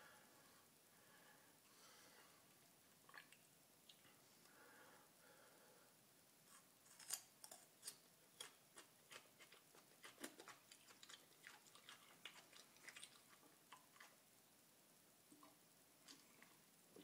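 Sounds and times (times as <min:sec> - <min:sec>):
chewing mouth clicks: 0:08.4 - 0:14.2.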